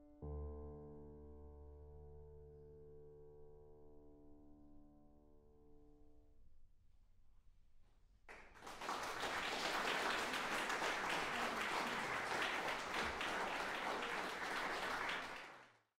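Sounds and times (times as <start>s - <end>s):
audience applauding: 8.3s - 15.9s.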